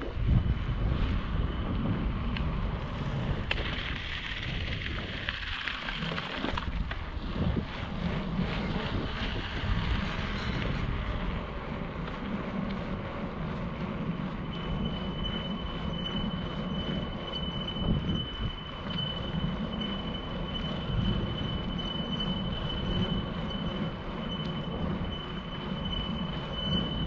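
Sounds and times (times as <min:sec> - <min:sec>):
high-pitched whine: 0:00.0 - 0:27.0
wind on microphone: 0:00.0 - 0:27.0
tyre rumble on asphalt: 0:00.5 - 0:25.2.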